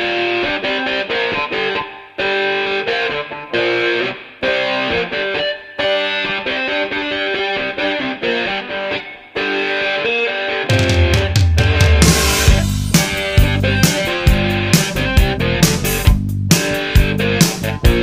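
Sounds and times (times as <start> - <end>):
distorted electric guitar riff: 0.0 - 18.0.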